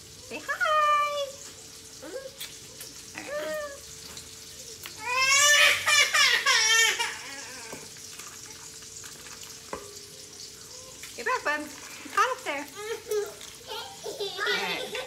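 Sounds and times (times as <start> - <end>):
bacon sizzling faintly: 0.0 - 15.0
baby crying: 5.0 - 7.9.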